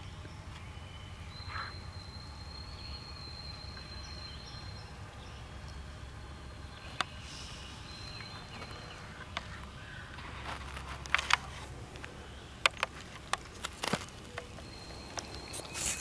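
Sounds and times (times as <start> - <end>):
faint bird chirps: 0.0 - 10.2, 14.2 - 16.0.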